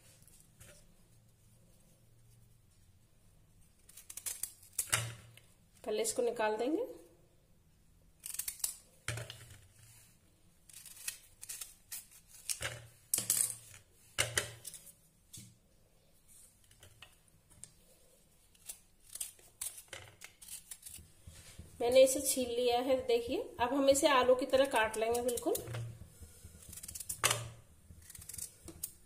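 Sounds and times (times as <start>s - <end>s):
peeler scraping turnip skin: 3.8s - 4.9s, 10.6s - 12.6s, 18.4s - 22.4s, 24.4s - 29.0s
knife cutting turnip: 24.6s - 29.0s.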